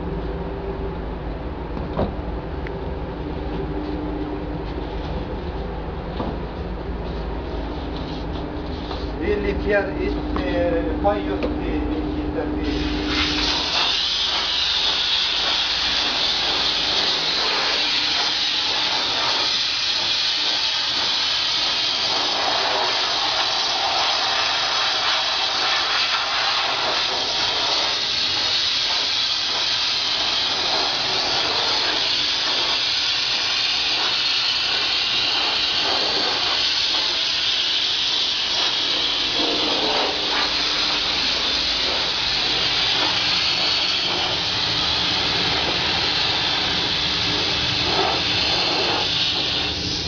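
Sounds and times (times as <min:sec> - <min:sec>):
low steady hum: 0:00.0 - 0:13.7
paint spray gun hissing: 0:12.6 - 0:50.0.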